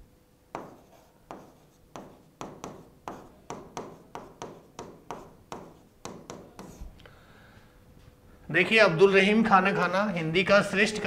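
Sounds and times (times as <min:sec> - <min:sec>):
pen tapping on touchscreen: 0:00.5 - 0:06.8.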